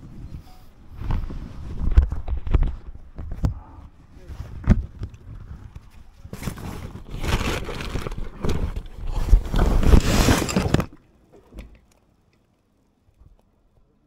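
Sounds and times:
camera handling rumbling scrape: 4.2s - 10.9s.

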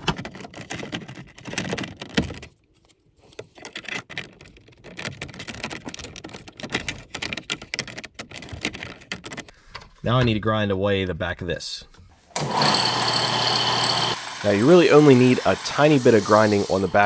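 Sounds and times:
plastic trim clicking and rattling: 0.0s - 2.6s, 3.3s - 9.5s.

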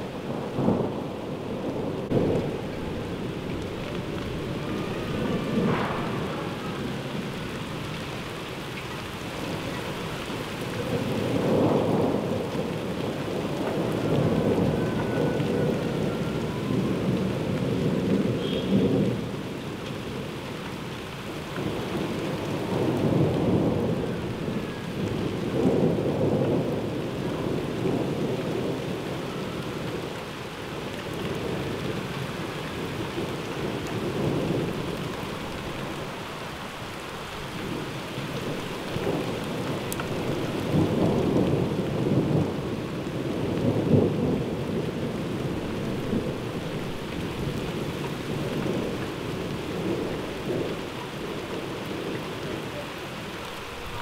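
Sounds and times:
heavy rain: 0.0s - 54.0s
thunder rolling: 0.1s - 8.6s, 10.8s - 19.4s, 37.6s - 52.1s.

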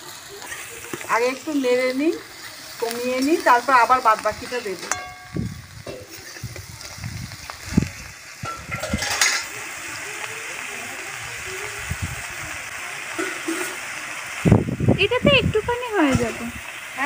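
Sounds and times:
frying sizzle: 0.0s - 17.0s
metal spatula knocking on pan: 4.8s - 6.1s.

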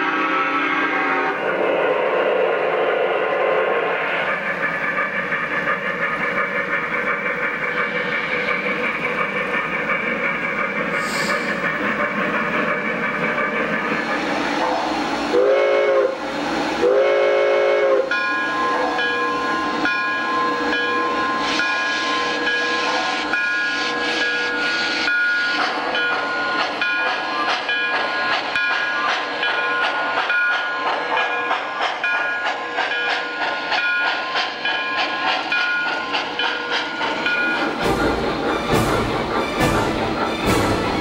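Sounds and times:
steam whistle blasts: 0.0s - 4.2s, 10.9s - 11.6s, 14.6s - 19.8s
model train running noise: 0.0s - 41.0s.

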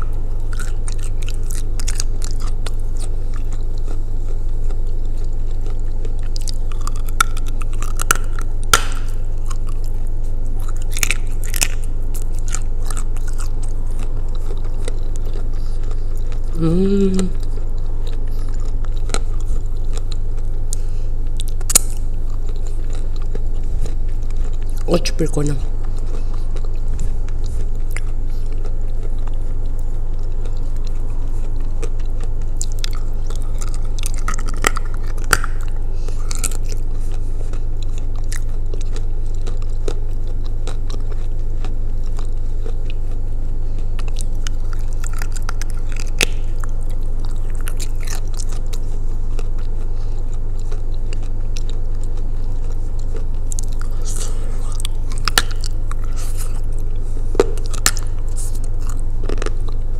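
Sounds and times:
wet mouth sounds: 0.0s - 39.8s
chewing and crunching clay: 0.0s - 59.9s
steady low hum: 0.0s - 59.9s.

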